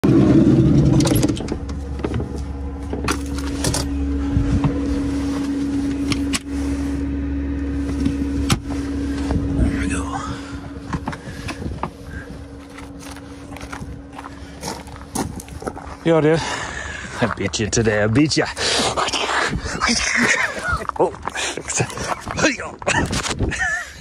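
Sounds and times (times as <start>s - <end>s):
low hum: 0.0s - 24.0s
knocks clicks and rustles: 0.6s - 6.5s.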